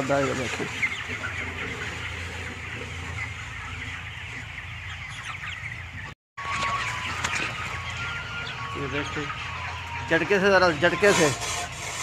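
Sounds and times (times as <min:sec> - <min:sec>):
chickens clucking and peeping: 0:00.0 - 0:12.0.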